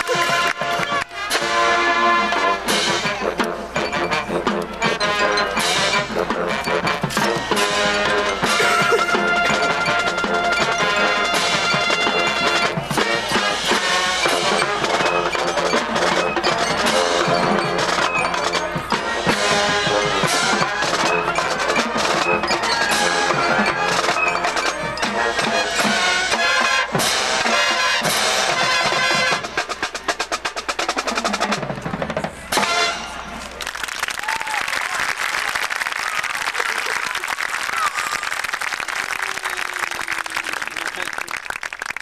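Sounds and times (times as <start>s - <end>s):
fast percussion strokes: 0.0s - 33.2s
marching band playing: 0.0s - 33.5s.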